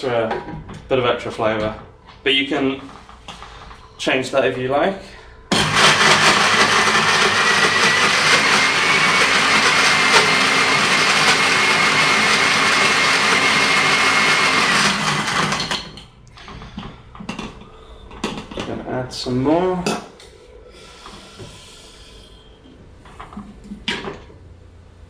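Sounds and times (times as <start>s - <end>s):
blender crushing ice: 5.5s - 16.0s.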